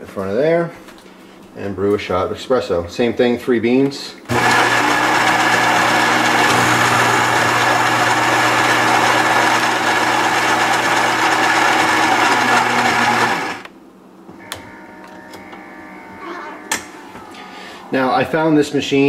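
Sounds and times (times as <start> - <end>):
coffee grinder grinding: 4.3 - 13.7.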